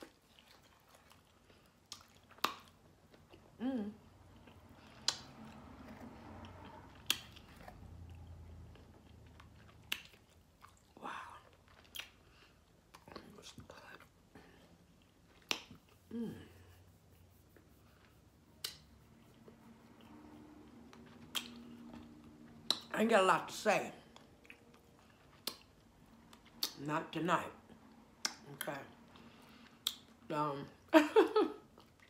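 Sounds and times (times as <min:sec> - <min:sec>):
lip smacks: 0:00.0 - 0:03.6, 0:04.3 - 0:14.2, 0:15.0 - 0:16.1, 0:18.5 - 0:22.9, 0:24.2 - 0:26.8, 0:28.1 - 0:30.2
person chewing: 0:00.0 - 0:16.1, 0:16.9 - 0:22.9, 0:24.0 - 0:26.8, 0:28.2 - 0:30.2
person humming: 0:03.6 - 0:04.0.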